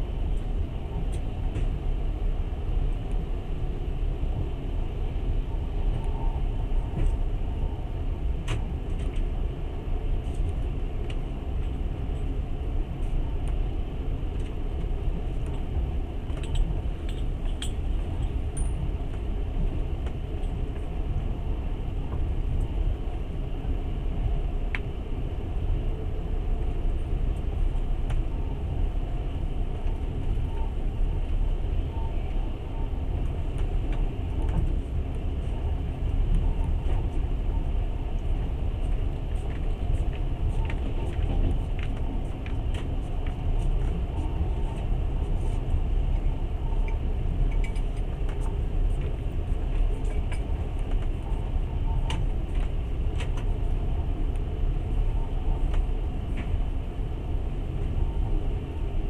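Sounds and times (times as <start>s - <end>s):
train carriage rumble: 0.0s - 59.0s.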